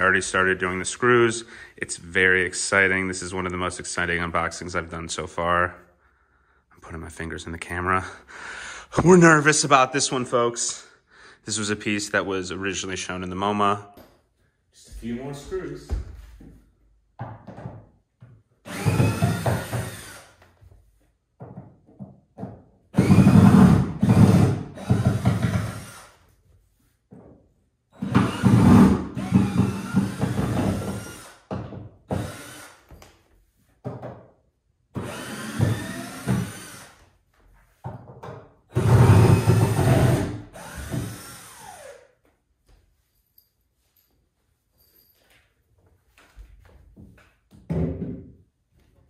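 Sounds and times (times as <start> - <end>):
power drill driving screws: 18.6 - 20.4, 23.0 - 26.2, 28.0 - 31.5, 32.1 - 33.0, 35.0 - 37.1, 38.7 - 42.1.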